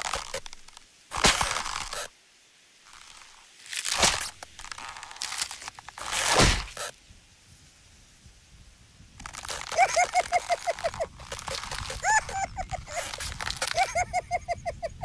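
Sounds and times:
paper rustling and crinkling: 0.0 - 2.1, 2.9 - 6.9, 9.2 - 14.1
short squeaky chirps: 9.2 - 14.1.

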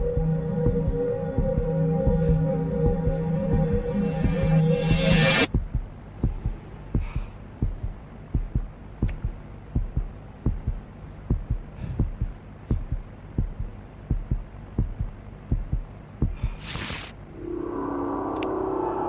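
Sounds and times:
heartbeat thumps: 0.0 - 16.7
steady low hum: 0.0 - 19.0
rush of hissing noise: 16.6 - 19.0.

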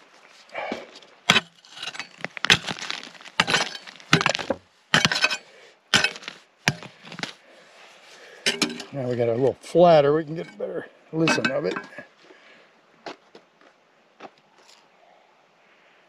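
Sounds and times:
pick striking rock: 1.3 - 7.4, 11.2 - 12.0.

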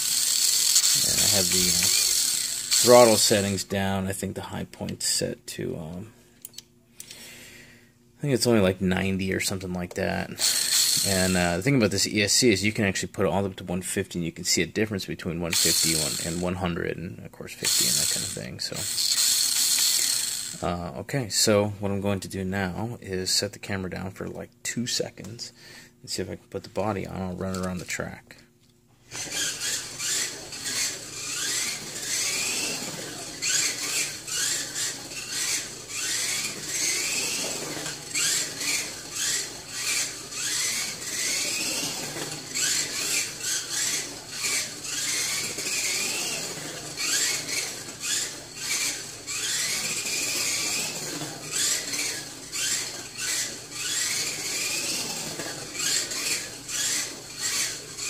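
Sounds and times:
toy car motor whine: 0.0 - 3.6, 10.4 - 11.6, 15.5 - 16.5, 17.6 - 20.8, 29.1 - 58.0.

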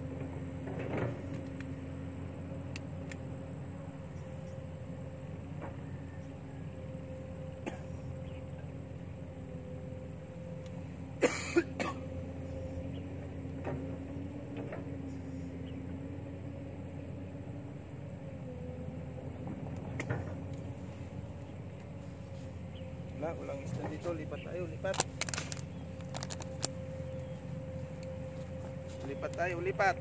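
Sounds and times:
low mechanical drone: 0.0 - 30.0
outdoor rumble: 0.0 - 30.0
person coughing: 7.6 - 7.9, 11.2 - 12.0.

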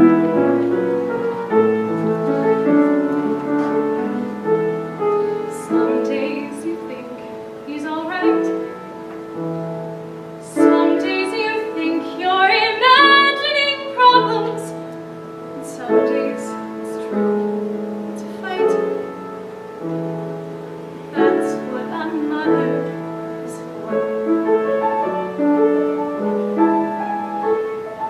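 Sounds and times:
piano accompaniment: 0.0 - 28.0
women singing: 5.5 - 8.5, 10.5 - 14.8, 15.6 - 17.2, 21.1 - 23.7.

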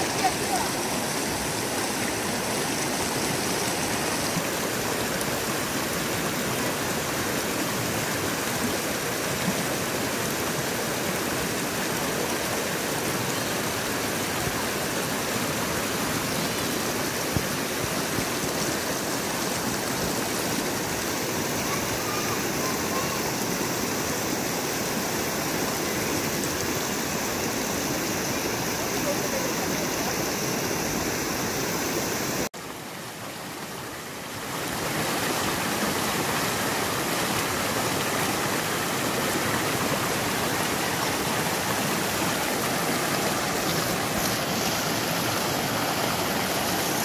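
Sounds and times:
stream rushing over stones: 0.0 - 47.0.

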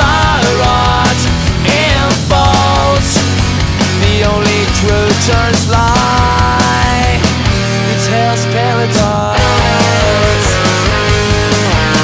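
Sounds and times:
instrumental punk rock band: 0.0 - 12.0.

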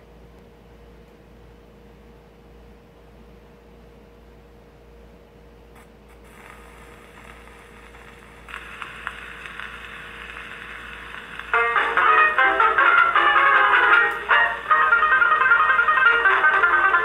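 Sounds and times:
record surface hiss and crackle: 0.0 - 17.0
needle ticks on record: 5.8 - 12.0.

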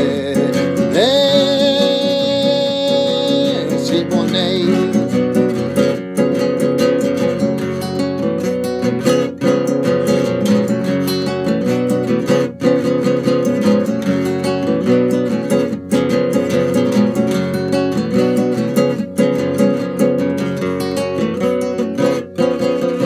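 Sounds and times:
man singing long note: 0.0 - 5.0
classical guitar strummed: 0.0 - 23.0.

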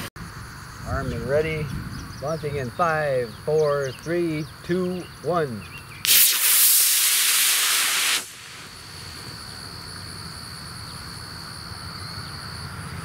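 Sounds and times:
rocket motor hissing: 6.0 - 9.8.

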